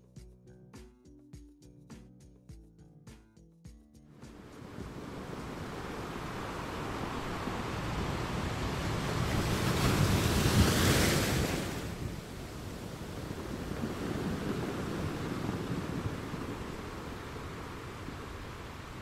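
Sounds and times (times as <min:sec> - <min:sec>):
sea surf breaking over rocks: 0:04.3 - 0:19.0
wind buffeting microphone: 0:04.4 - 0:19.0.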